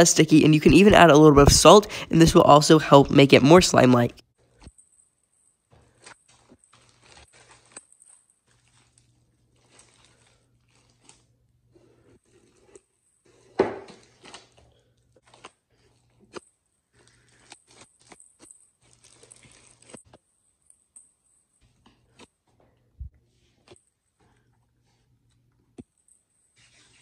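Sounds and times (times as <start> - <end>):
slime crackling and squishing: 4.4 - 22.5
loud slime squelch: 5.7 - 20.2.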